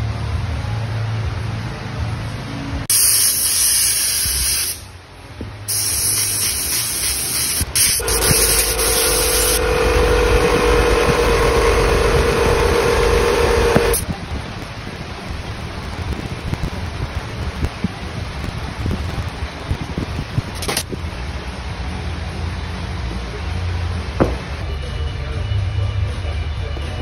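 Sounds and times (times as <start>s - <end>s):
spray gun hissing: 2.9s - 4.9s, 5.7s - 14.0s
steady hum: 7.6s - 19.6s.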